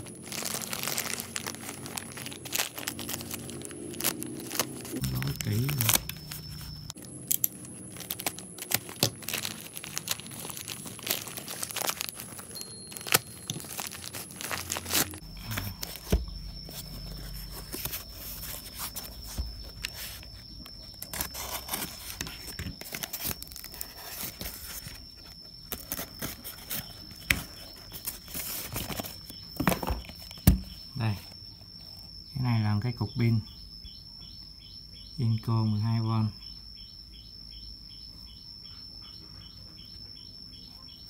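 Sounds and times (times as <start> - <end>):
plastic bag crinkling and tearing: 0.0 - 16.1, 21.0 - 25.0
parcel wrapping torn away: 0.0 - 16.2.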